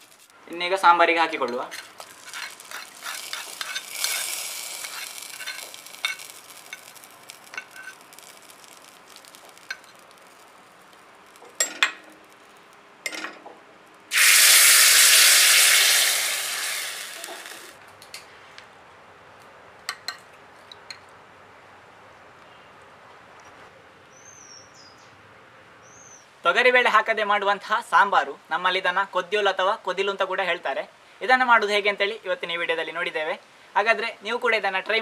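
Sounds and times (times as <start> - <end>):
hot oil sizzling: 0.0 - 12.8, 14.0 - 17.8.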